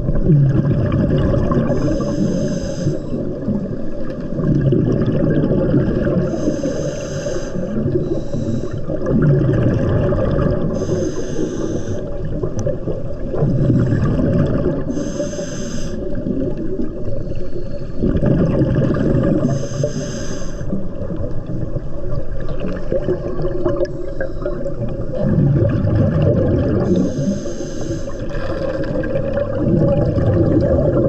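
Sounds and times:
bubbling of exhaled air: 0.0s - 31.0s
regulator hissing inhalation: 1.7s - 3.2s, 6.3s - 9.0s, 10.8s - 12.2s, 14.9s - 16.2s, 19.4s - 20.8s, 26.9s - 28.3s.

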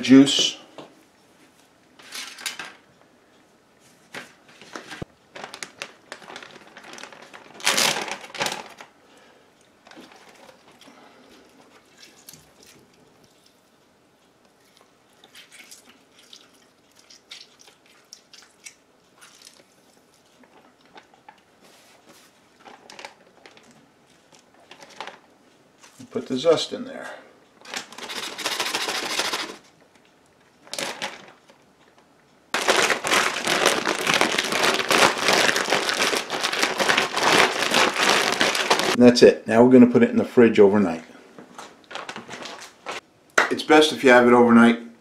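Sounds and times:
plastic bag rustling: 4.1s - 8.9s, 20.3s - 25.3s, 27.6s - 29.7s, 30.6s - 31.6s, 32.6s - 39.0s, 41.5s - 43.0s.

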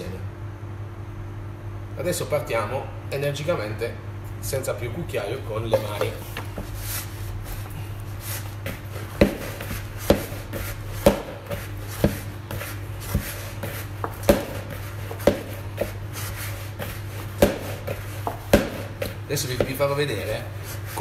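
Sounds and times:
dough being kneaded thumping: 5.5s - 21.0s.

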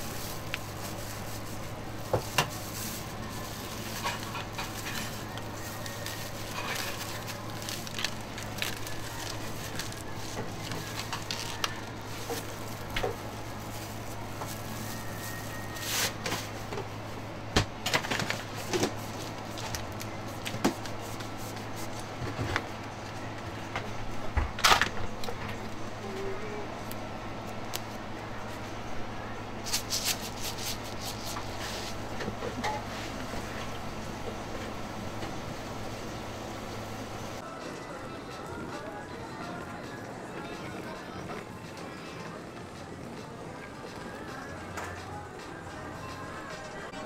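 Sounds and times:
paper rustling: 0.0s - 16.7s, 29.6s - 32.0s.

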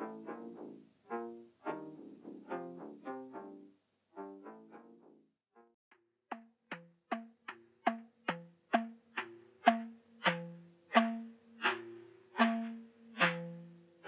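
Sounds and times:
slit log drum strikes: 6.3s - 13.8s.

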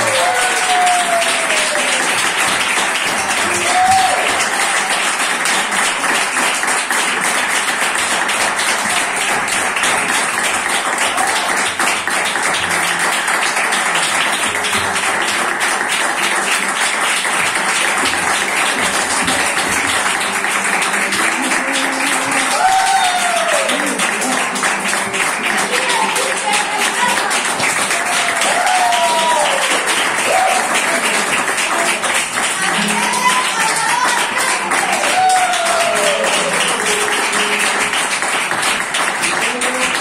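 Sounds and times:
audience applause: 0.0s - 40.0s.

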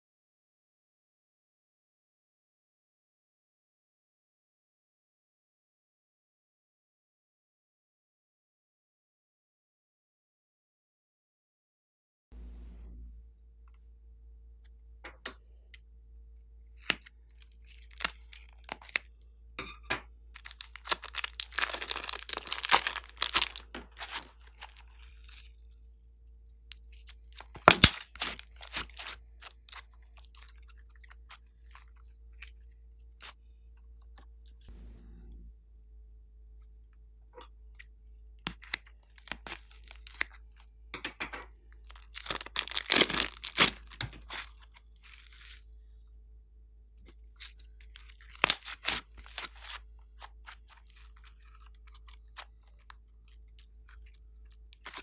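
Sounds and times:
slime crackling and popping: 16.8s - 19.1s, 20.4s - 25.5s, 26.7s - 30.4s, 38.5s - 40.5s, 41.8s - 45.6s, 47.9s - 53.0s.

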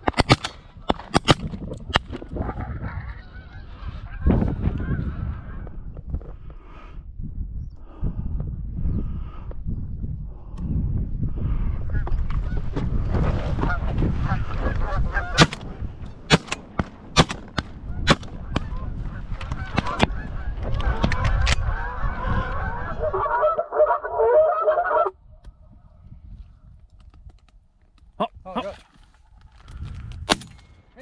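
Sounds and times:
wind rumble on microphone: 0.0s - 23.5s, 25.1s - 31.0s
geese honking in flight: 13.7s - 15.4s, 18.7s - 25.1s.

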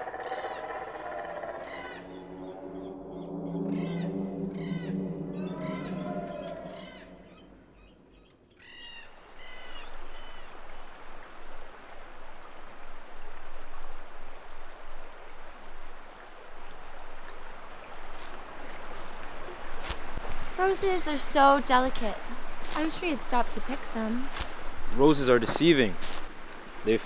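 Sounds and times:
low drone: 0.0s - 8.1s.

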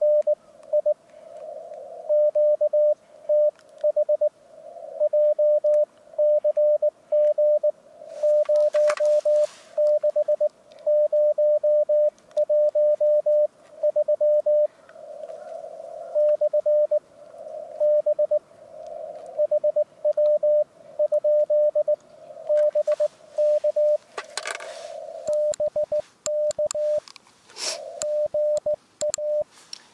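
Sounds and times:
morse code tone: 0.0s - 1.0s, 2.1s - 4.3s, 5.0s - 14.7s, 16.2s - 17.0s, 17.8s - 18.4s, 19.4s - 24.0s, 24.9s - 27.0s, 27.9s - 29.5s
radio band hiss: 0.0s - 29.9s.

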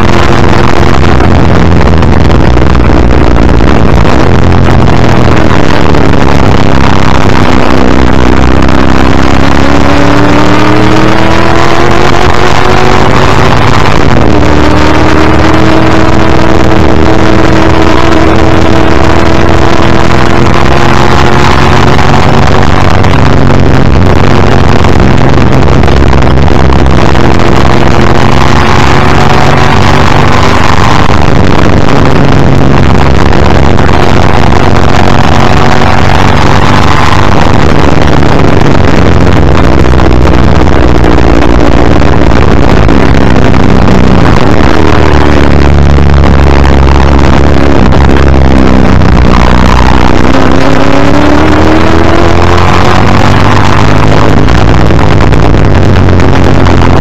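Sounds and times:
gear upshifts: 0.0s - 57.0s
racing car engine revving: 0.0s - 57.0s.

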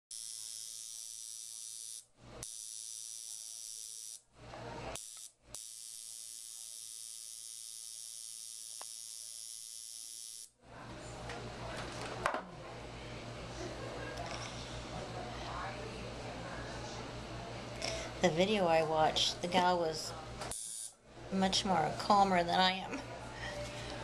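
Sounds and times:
tattoo machine buzzing: 0.1s - 4.2s, 4.9s - 10.6s, 20.5s - 21.0s.

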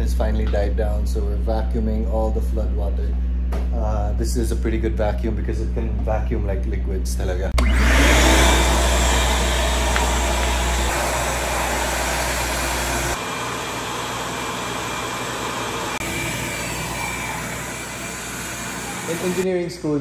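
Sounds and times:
shop vacuum sucking up water: 7.6s - 19.4s.

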